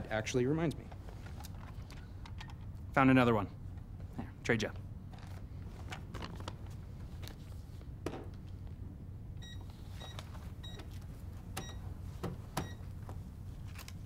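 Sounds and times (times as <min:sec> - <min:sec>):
cash register beeps: 0:09.4 - 0:10.9, 0:11.6 - 0:11.9, 0:12.6 - 0:12.9.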